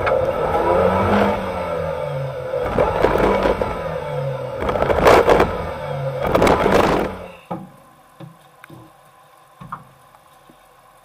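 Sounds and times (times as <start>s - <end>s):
heavy rushing noise: 0.0s - 7.4s
engine running under load: 0.0s - 7.6s.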